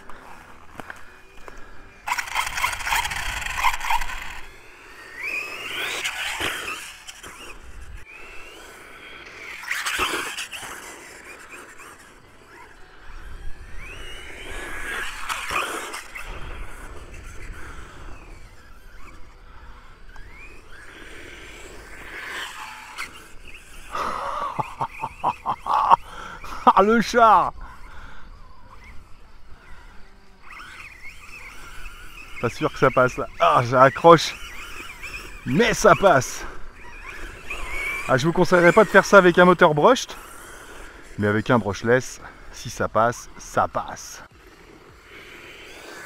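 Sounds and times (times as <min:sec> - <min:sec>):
electric motor whining: 0:00.0 - 0:46.0
tyres scraping through tall grass: 0:22.1 - 0:45.2.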